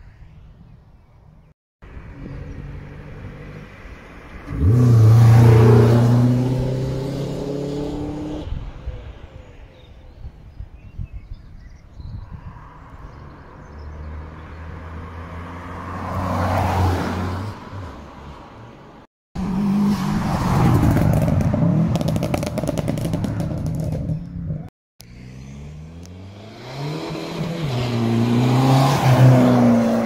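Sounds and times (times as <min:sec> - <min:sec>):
cars driving past: 0:01.9 - 0:09.2, 0:12.4 - 0:24.0, 0:25.0 - 0:30.0.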